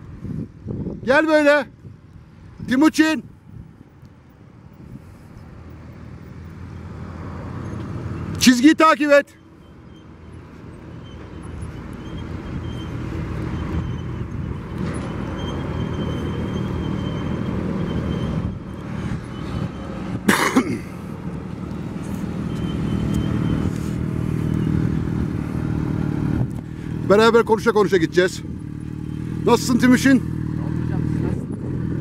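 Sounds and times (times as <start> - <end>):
person coughing: 20.3 - 21.0
motorcycle engine running: 24.4 - 32.0.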